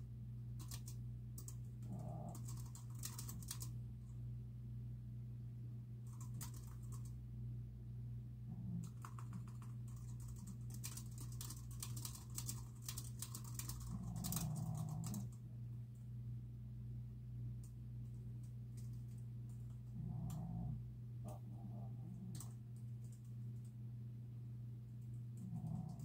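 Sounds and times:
steady low hum: 0.0 - 26.0
keyboard typing: 0.6 - 3.7, 6.1 - 7.2, 8.8 - 15.4.

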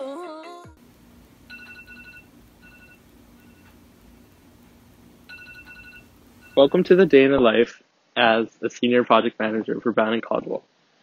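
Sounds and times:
singing music: 0.0 - 0.8
faint steady hum: 0.7 - 11.0
phone alarm beeps: 1.5 - 3.8, 5.3 - 6.9.

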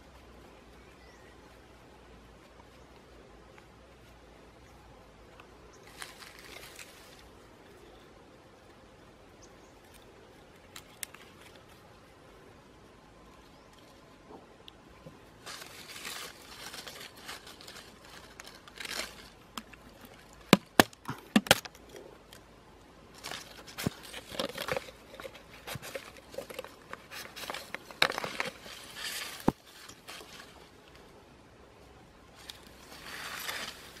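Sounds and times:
dry grass rustling: 0.0 - 12.7, 15.0 - 34.0
footsteps through dry grass: 5.8 - 7.4, 15.4 - 19.9, 23.2 - 30.9, 32.4 - 34.0.

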